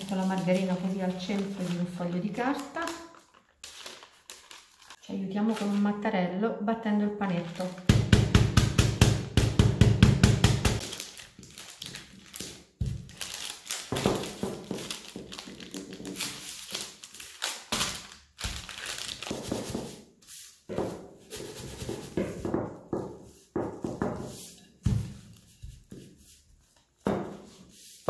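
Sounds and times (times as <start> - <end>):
parchment paper crinkling: 0.0 - 6.1, 7.2 - 8.0, 10.8 - 20.5.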